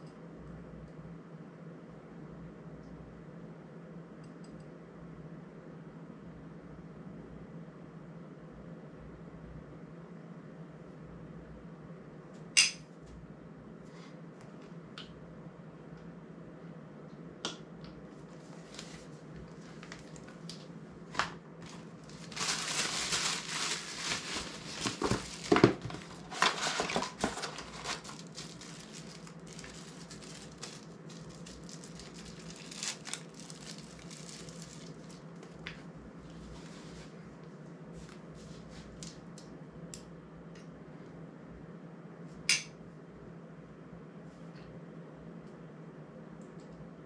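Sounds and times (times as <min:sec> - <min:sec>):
parts rustling and clattering: 0:18.4 - 0:35.6.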